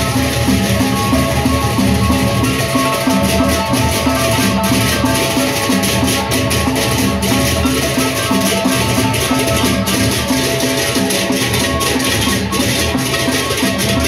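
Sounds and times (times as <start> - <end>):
drums and gongs pulse: 0.0 - 14.0
kettle gongs struck with mallets: 0.0 - 14.0
shimmering cymbals: 0.0 - 14.0.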